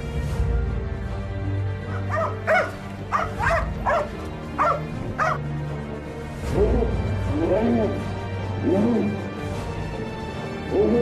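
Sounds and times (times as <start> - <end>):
background music: 0.0 - 11.0
dog barking sharply: 1.9 - 5.4.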